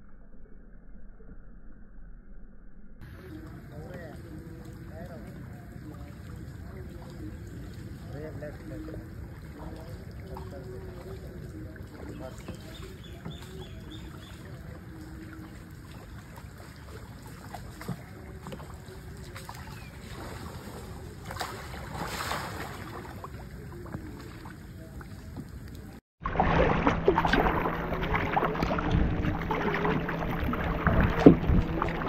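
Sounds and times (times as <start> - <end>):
low hum: 0.0 - 10.1, 26.2 - 32.0
water noise: 3.0 - 32.0
wind: 3.0 - 32.0.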